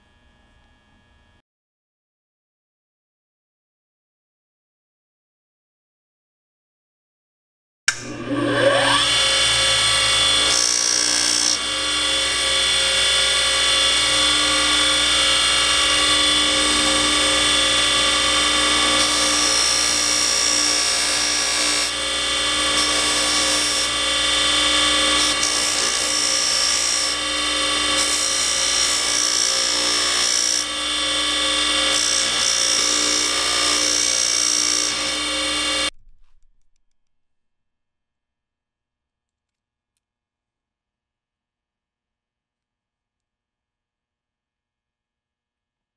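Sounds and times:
bench grinder motor running: 7.9 - 35.9.

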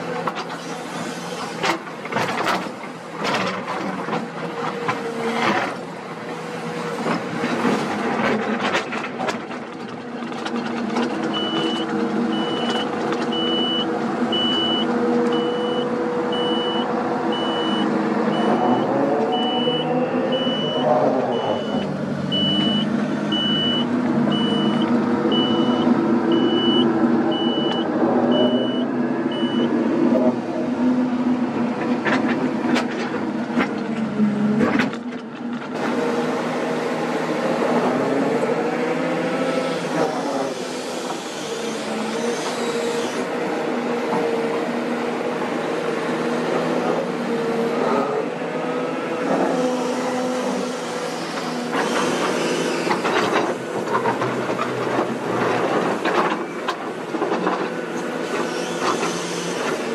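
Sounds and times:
excavator diesel engine: 0.0 - 59.9
warning beeper: 14.4 - 29.7.

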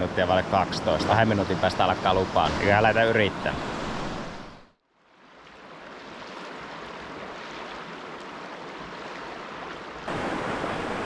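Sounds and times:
river rapids rushing: 6.4 - 11.0.

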